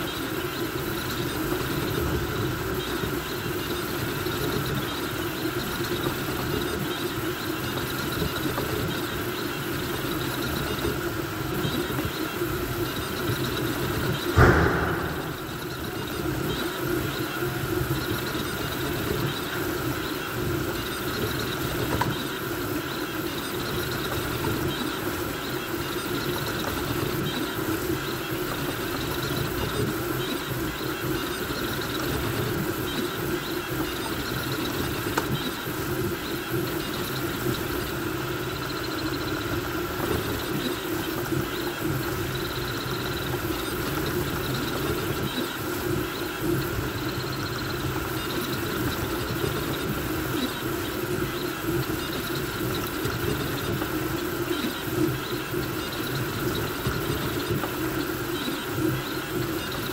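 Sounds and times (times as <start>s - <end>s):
cooling fans humming: 0.0s - 59.2s
stepper motors and belts whirring: 0.0s - 59.9s
thump: 14.4s - 15.8s.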